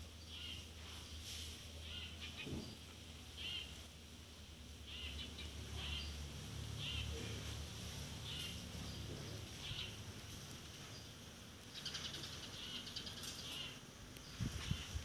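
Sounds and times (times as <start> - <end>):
small bird chirping: 3.4 - 3.8, 4.9 - 6.2, 6.8 - 7.4, 8.2 - 10.0, 10.8 - 15.0.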